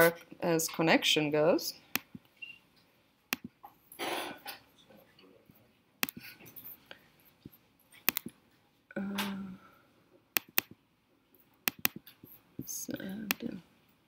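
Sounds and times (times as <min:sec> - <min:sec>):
computer clicks: 0:03.3 - 0:03.6, 0:06.0 - 0:06.3, 0:08.0 - 0:08.4, 0:10.4 - 0:10.8, 0:11.7 - 0:13.6.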